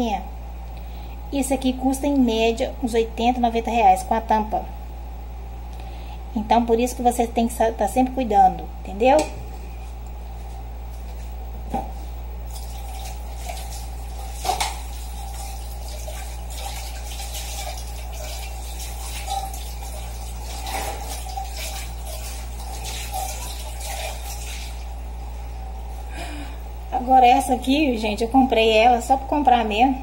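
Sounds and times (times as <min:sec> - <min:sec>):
water running from tap: 0:12.5 - 0:25.2.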